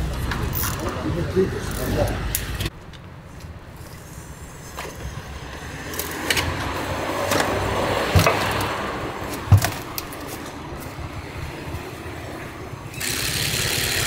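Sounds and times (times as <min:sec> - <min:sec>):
tyres rolling over hard ground: 0:04.6 - 0:11.0.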